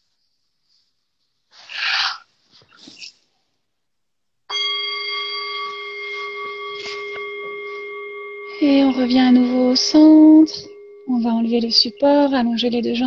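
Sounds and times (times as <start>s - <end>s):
singing bowl ringing: 4.5s - 13.0s.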